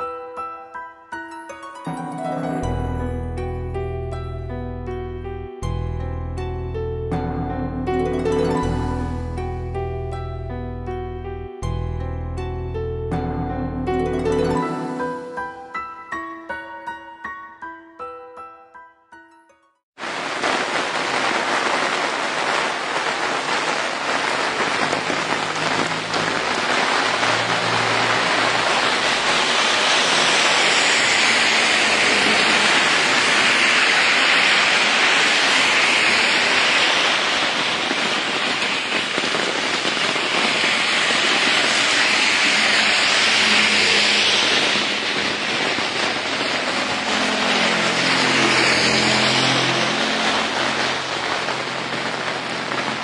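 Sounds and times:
heavy rain on street: 0:07.2 - 0:09.7, 0:13.2 - 0:15.6, 0:20.0 - 0:53.0
vehicles passing through water: 0:24.1 - 0:38.9, 0:39.9 - 0:53.0.

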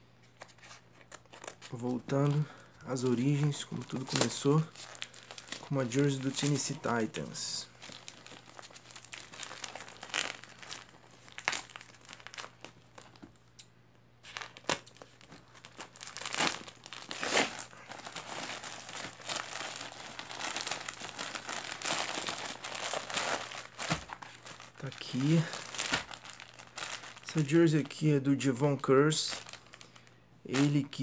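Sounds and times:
paper and tape tearing and crumpling: 0:03.2 - 0:13.1, 0:14.2 - 0:27.8.

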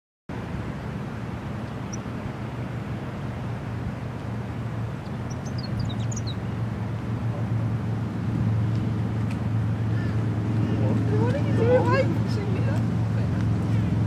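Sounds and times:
low engine drone: 0:00.3 - 0:14.0
high bird chirps: 0:01.8 - 0:02.1, 0:05.0 - 0:06.4.

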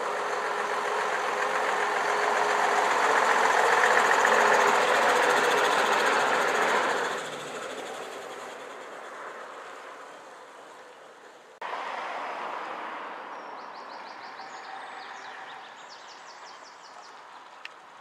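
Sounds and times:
bus engine rumbling: 0:00.0 - 0:18.0
songbird singing: 0:13.2 - 0:18.0.

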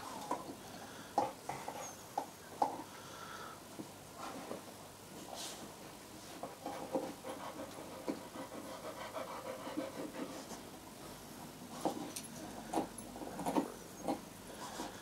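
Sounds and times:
dog chewing a bone: 0:11.8 - 0:15.0.

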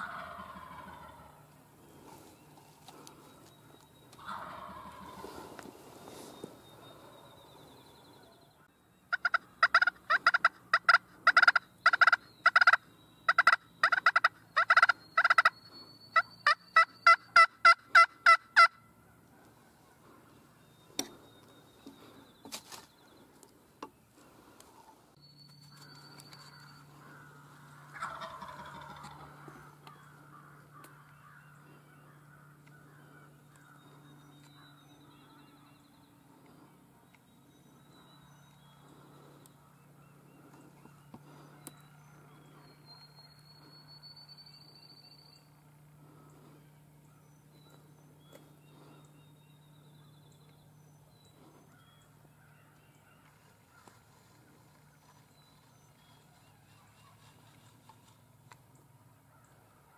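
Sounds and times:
turkey yelping: 0:00.0 - 0:01.5, 0:04.1 - 0:05.6, 0:09.1 - 0:15.6, 0:16.2 - 0:19.9, 0:26.6 - 0:30.0
distant turkey gobble: 0:00.0 - 0:07.3, 0:09.1 - 0:22.8, 0:25.7 - 0:35.6, 0:51.3 - 0:59.9.

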